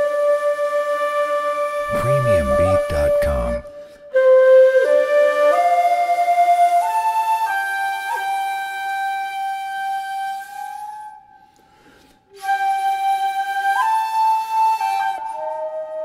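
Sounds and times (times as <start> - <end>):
flute playing slow melody: 0.0 - 16.0.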